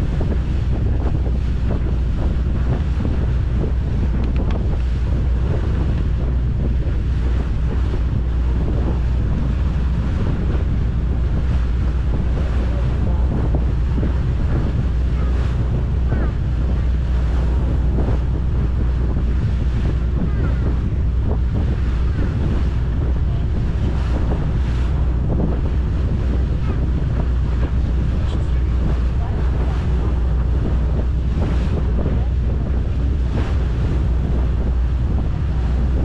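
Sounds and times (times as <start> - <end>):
boat engine drone: 0.0 - 36.0
water rushing past hull: 0.0 - 36.0
wind buffeting microphone: 0.0 - 36.0.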